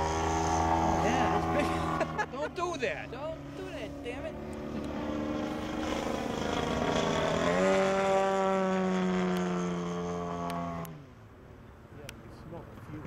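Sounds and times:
model plane engine whine: 3.3s - 10.9s.

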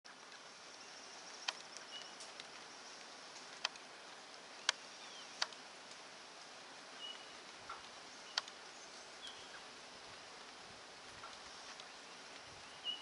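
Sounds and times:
steady high hiss: 0.1s - 13.0s
sharp ticks: 1.4s - 2.5s, 3.4s - 3.9s, 5.4s - 6.0s, 7.7s - 8.6s
faint bird calls: 6.9s - 10.5s, 11.2s - 13.0s.

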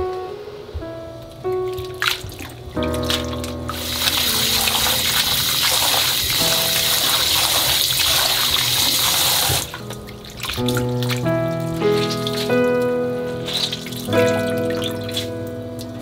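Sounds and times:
water splashing: 1.4s - 16.0s
tap water running into bowl: 1.8s - 11.2s.

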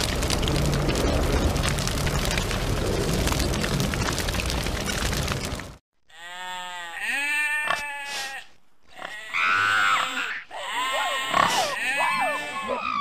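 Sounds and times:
sheep bleating: 6.1s - 13.0s
pig squealing: 8.9s - 13.0s.

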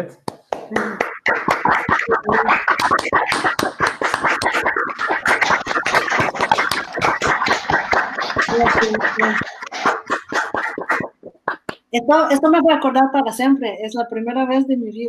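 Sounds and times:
people clapping: 0.3s - 11.9s.

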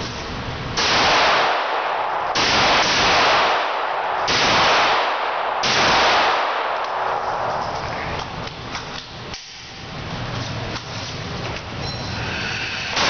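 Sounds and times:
handgun shots echoing indoors: 0.8s - 9.6s.

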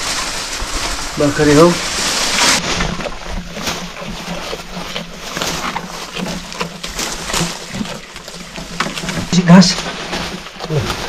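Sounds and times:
goat eating twigs and leaves: 0.0s - 11.0s
leafy branches rustling and snapping: 0.0s - 11.0s.

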